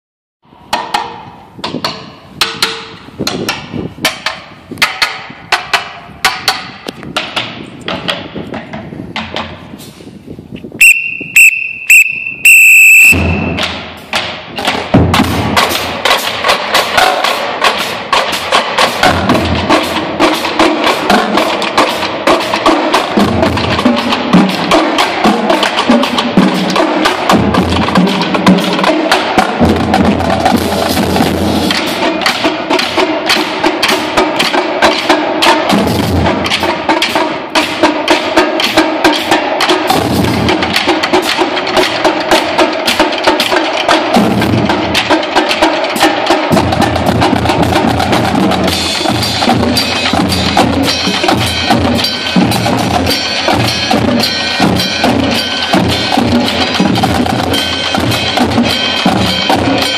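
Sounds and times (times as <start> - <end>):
short high-pitched tones: 10.8 - 13.6
drumline playing: 10.8 - 59.9.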